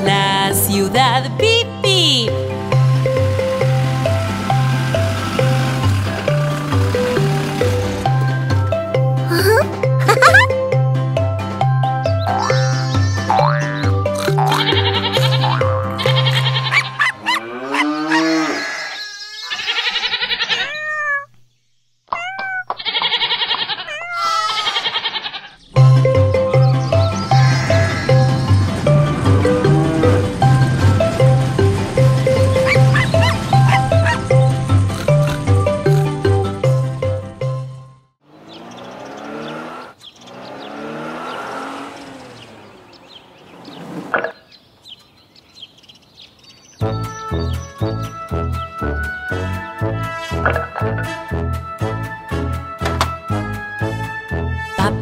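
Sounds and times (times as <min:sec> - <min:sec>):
children's song music: 0:00.0 - 0:16.7, 0:25.7 - 0:38.0, 0:46.8 - 0:55.0
cartoon toy truck engine: 0:01.8 - 0:10.5, 0:38.2 - 0:43.2
cartoon cat meowing: 0:09.3 - 0:10.5, 0:18.4 - 0:21.4, 0:22.1 - 0:25.5
birds chirping: 0:11.8 - 0:36.8, 0:37.8 - 0:51.3
cartoon cow mooing: 0:12.3 - 0:13.6, 0:14.2 - 0:21.3, 0:22.3 - 0:25.6, 0:27.3 - 0:28.5.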